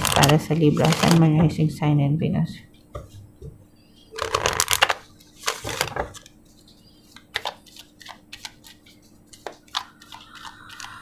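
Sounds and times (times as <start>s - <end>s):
cards being shuffled by hand: 4.2s - 11.0s.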